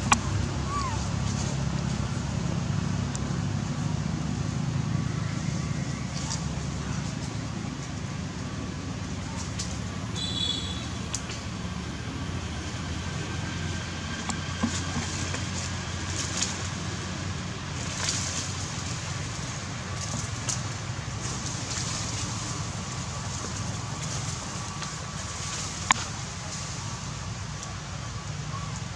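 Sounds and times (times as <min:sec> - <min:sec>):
branches clicking and rustling: 0:13.1 - 0:28.9.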